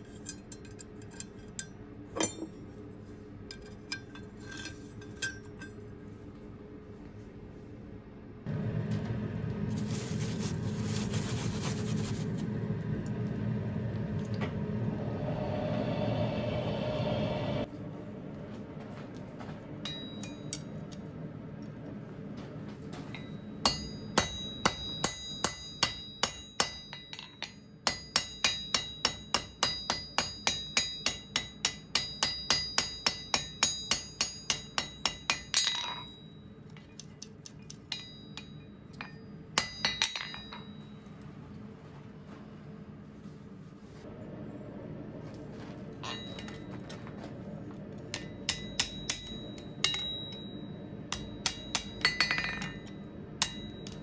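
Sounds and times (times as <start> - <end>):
hammer ringing on anvil: 0.2 - 2.7, 19.8 - 20.7, 23.0 - 36.6, 37.9 - 41.2, 46.0 - 46.8, 48.1 - 54.0
forge air blower running: 8.5 - 19.8.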